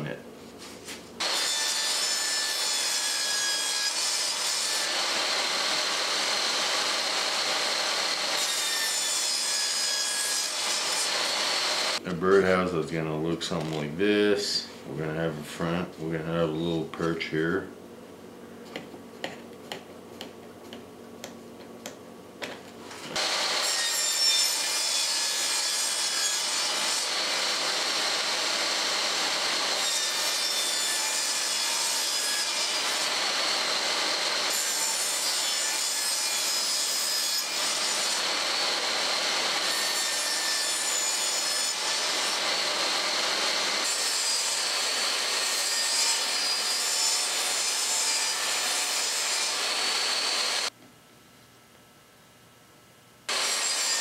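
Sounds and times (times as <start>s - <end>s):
table saw cutting wood: 1.2s - 12.0s, 23.1s - 50.7s, 53.3s - 54.0s.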